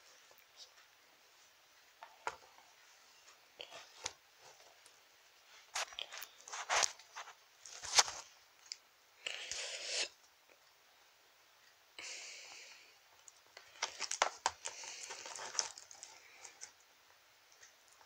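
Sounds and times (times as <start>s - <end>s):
toys rustling and clicking: 13.2s - 16.9s.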